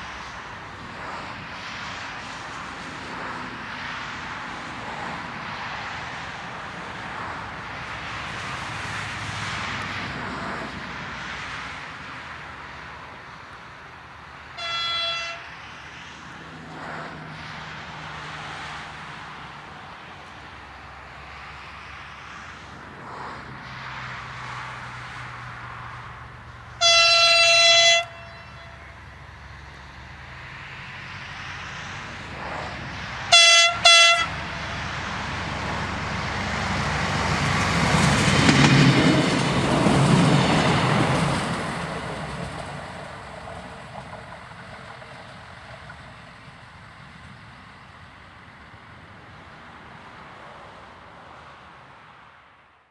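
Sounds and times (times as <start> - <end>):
train passing rumble: 0.0 - 52.4
train horn blasts: 14.6 - 15.5, 26.8 - 29.1, 33.3 - 34.9.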